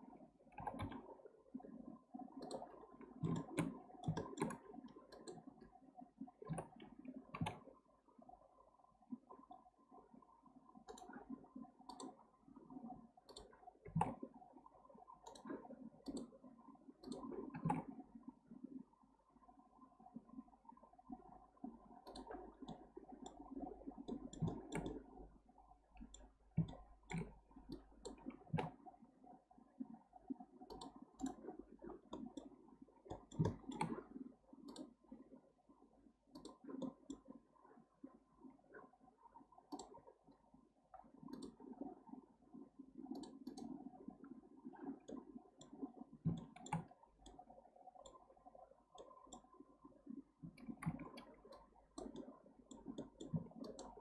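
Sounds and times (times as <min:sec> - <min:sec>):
faint steady hum: 0:00.0 - 0:54.0
mouse and keyboard clicking: 0:02.4 - 0:05.5, 0:24.0 - 0:25.0, 0:26.0 - 0:28.7, 0:33.1 - 0:34.0, 0:43.1 - 0:43.7, 0:45.1 - 0:47.4, 0:50.5 - 0:54.0.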